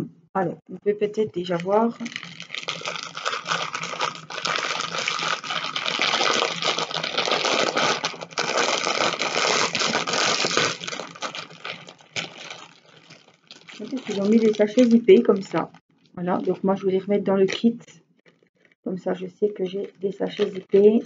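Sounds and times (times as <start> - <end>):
plastic packaging crinkling: 1.4 - 15.7, 19.6 - 21.0.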